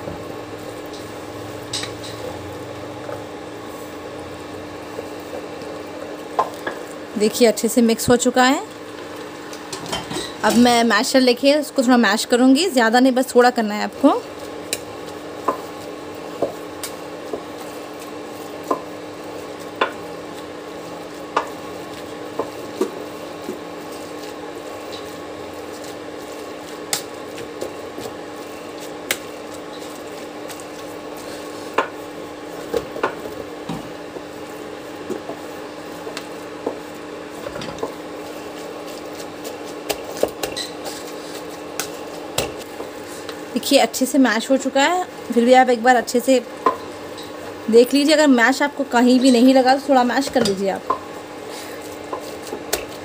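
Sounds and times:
potato masher mashing: 12.1 - 53.0.

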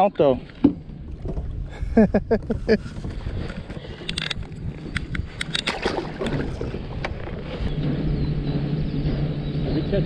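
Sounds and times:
water against kayak hull: 0.0 - 9.6
wind on microphone: 0.4 - 10.0
steady low hum: 5.2 - 10.0.

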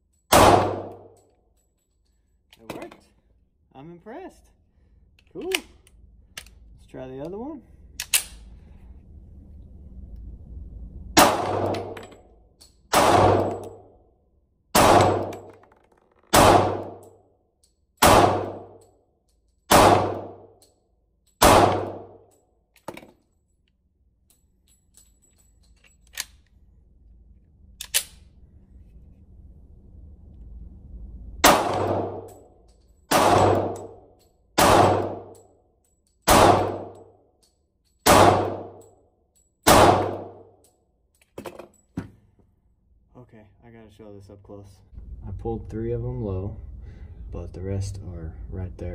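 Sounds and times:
pistol shots ringing indoors: 0.1 - 1.3, 11.2 - 14.0, 14.7 - 15.6, 16.2 - 22.4, 31.4 - 40.8.

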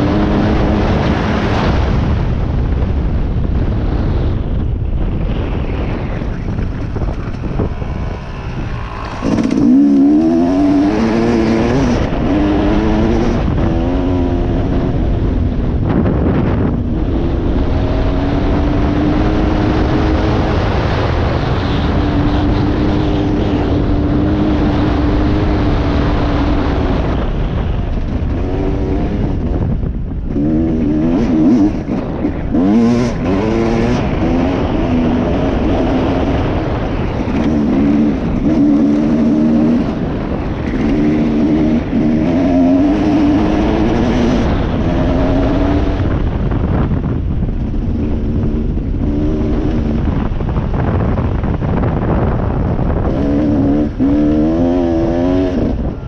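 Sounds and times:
steady rushing noise: 0.0 - 56.0
dirt bike engine revving: 6.4 - 27.4, 30.3 - 46.8, 47.8 - 50.5, 52.2 - 56.0.

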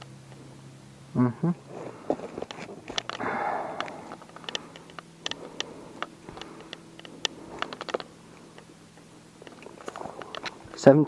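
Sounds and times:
light clicks and taps: 3.8 - 10.8.

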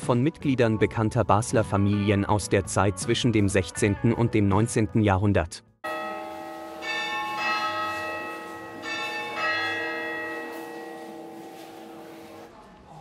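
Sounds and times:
church bells ringing: 5.8 - 12.5
sustained ringing hum: 5.9 - 12.5.

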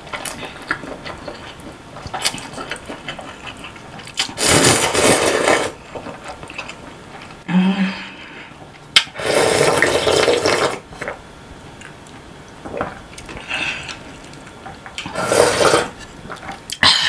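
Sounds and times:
slurping broth: 3.4 - 5.8, 9.1 - 10.8, 15.0 - 16.4.

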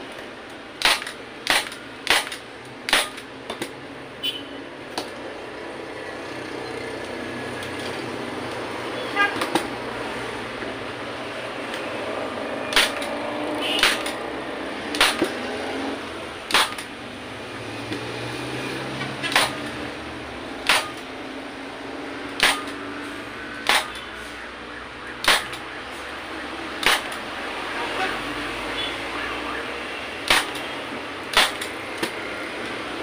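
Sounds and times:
staple gun firing: 0.8 - 3.7, 12.7 - 13.1, 13.8 - 14.2, 14.9 - 15.4, 16.5 - 16.9, 19.3 - 19.7, 20.6 - 21.1, 22.4 - 22.8, 23.6 - 24.0, 25.2 - 25.6, 26.8 - 27.2, 30.2 - 30.6, 31.3 - 32.2.

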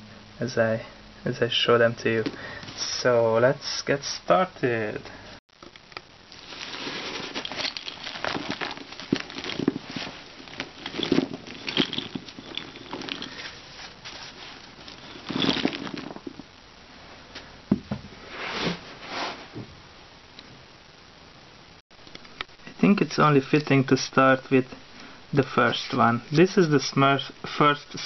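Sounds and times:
plastic figures clattering on carpet: 6.4 - 16.4.

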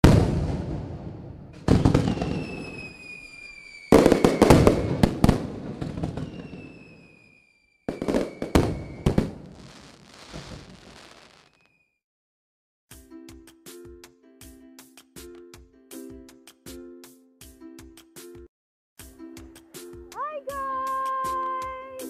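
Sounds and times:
fireworks bangs with crackling: 0.0 - 11.8.

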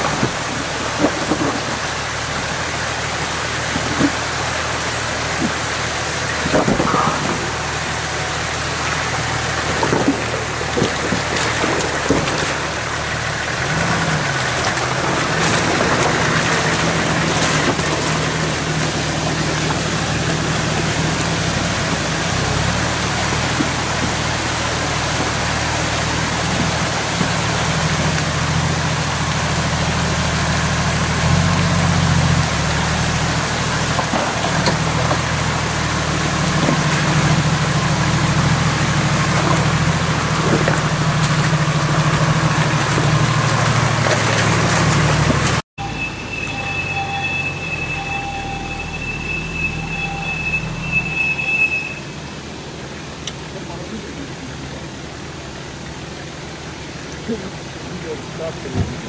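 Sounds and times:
stream rushing over rocks: 0.0 - 45.6, 48.7 - 59.0
suv engine: 0.0 - 59.0.

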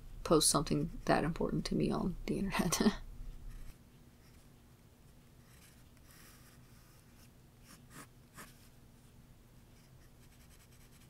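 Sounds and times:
pencil scratching on paper: 5.4 - 8.7, 9.8 - 11.0.

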